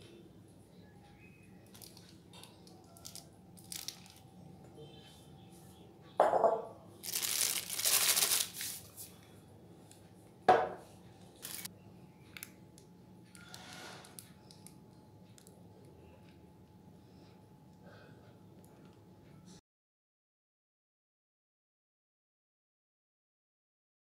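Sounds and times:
plastic bag crinkling: 1.6 - 4.3, 7.0 - 9.0, 11.4 - 11.7
sharp crackle of plastic: 1.6 - 4.3, 7.0 - 8.9, 11.4 - 11.7.

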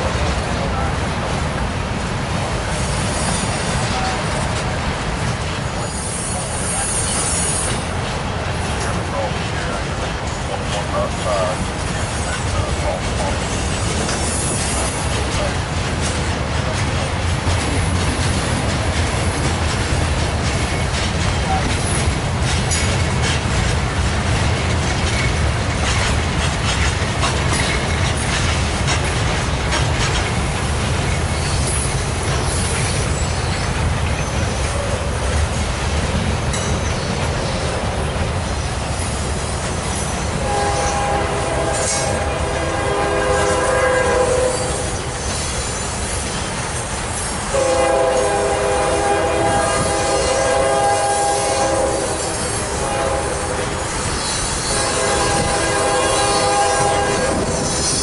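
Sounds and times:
freight train rumbling past: 0.0 - 58.0
wheels clacking over rail joints: 0.0 - 58.0
train horn blast: 40.4 - 44.9, 47.5 - 53.8, 54.6 - 57.7.

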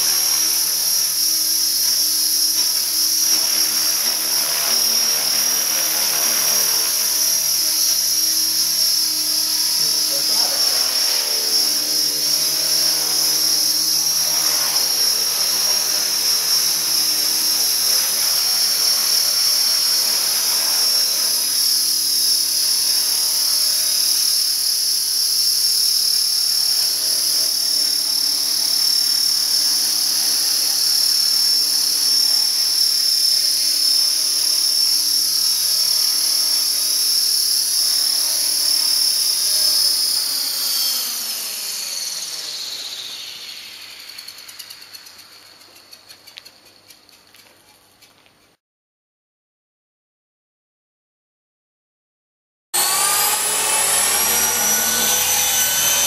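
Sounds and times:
helicopter rotor noise: 0.0 - 47.7, 52.8 - 56.0
rc helicopter motor whine: 0.0 - 48.2, 52.8 - 56.0.

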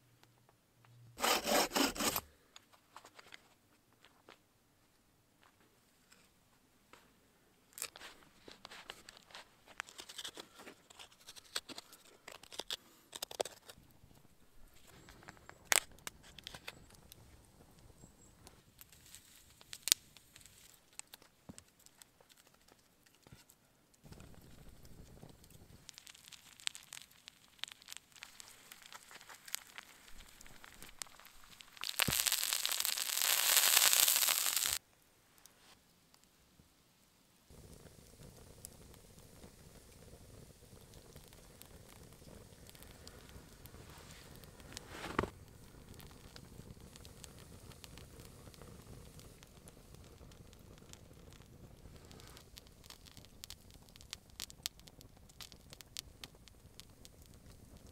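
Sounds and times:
knife scraping wood: 1.2 - 2.3
resin crackling and sizzling: 7.7 - 34.8, 37.4 - 57.9.

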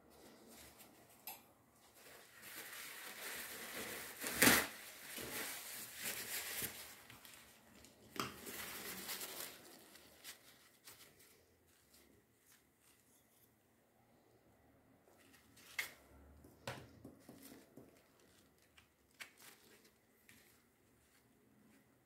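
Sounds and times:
paper towel rustling: 1.8 - 13.5.

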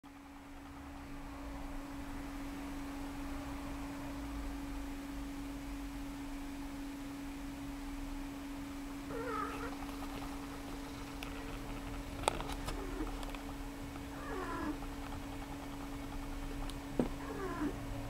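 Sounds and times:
steady hum: 0.1 - 18.0
cat meowing: 9.1 - 9.7, 14.1 - 14.8, 17.2 - 17.8.

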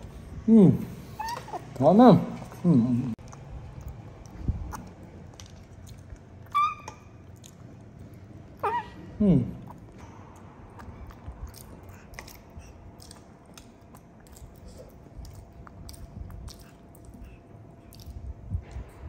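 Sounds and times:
faint chewing: 3.2 - 8.8, 9.5 - 18.9.

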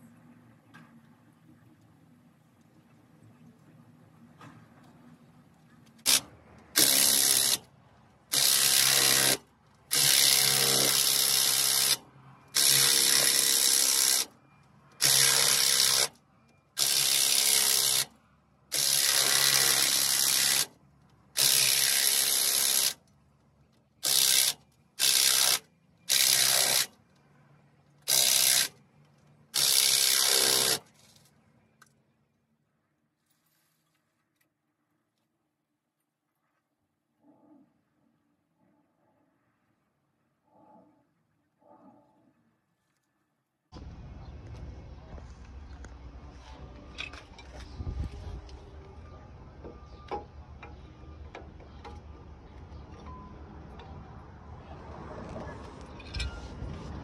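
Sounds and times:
impact wrench bursts: 6.0 - 7.7, 8.3 - 14.4, 15.0 - 16.2, 16.8 - 18.1, 18.7 - 20.7, 21.4 - 23.0, 24.0 - 26.9, 28.0 - 28.8, 29.5 - 30.9.

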